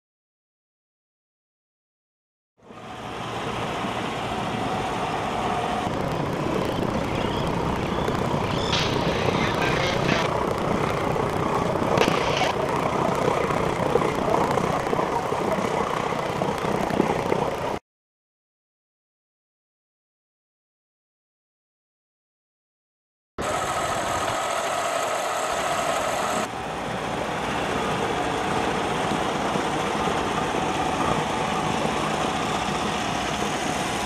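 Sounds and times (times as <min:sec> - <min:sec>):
engine rumble: 0:02.6 - 0:17.8, 0:23.4 - 0:34.0
wind-like noise: 0:02.7 - 0:17.8.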